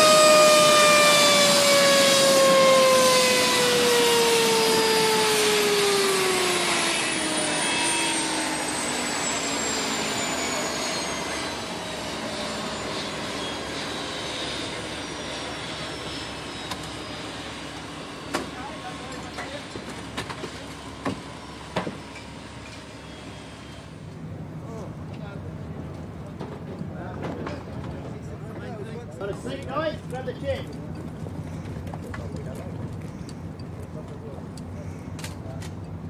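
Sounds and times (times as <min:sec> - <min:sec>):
turbine engine winding down: 0:00.0 - 0:24.9.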